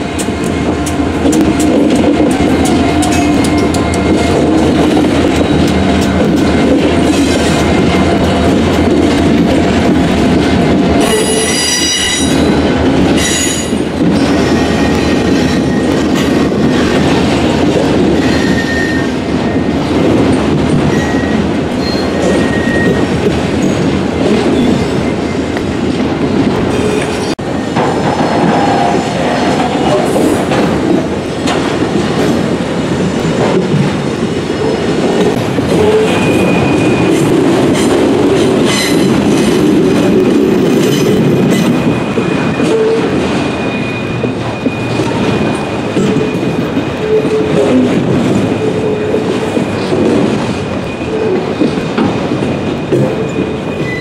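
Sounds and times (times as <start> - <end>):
freight train wheels rumbling: 0.0 - 54.0
high-pitched wheel squeals: 18.2 - 19.2, 20.9 - 23.8, 35.7 - 37.3, 53.0 - 54.0.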